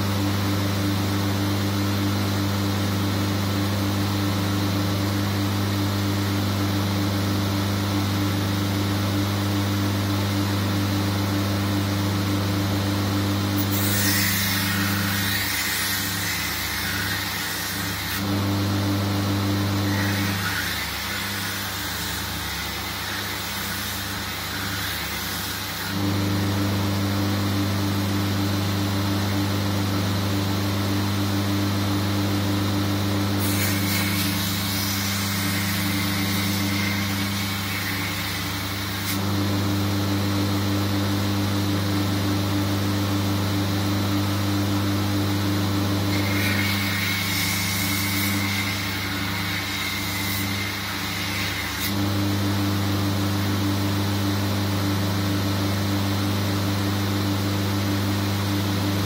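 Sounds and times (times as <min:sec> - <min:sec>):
belt grinder motor hum: 0:13.4 - 0:26.5, 0:33.2 - 0:39.6, 0:45.6 - 0:53.1
blade grinding hiss: 0:13.6 - 0:18.4, 0:19.3 - 0:26.1, 0:33.2 - 0:39.3, 0:46.0 - 0:52.1.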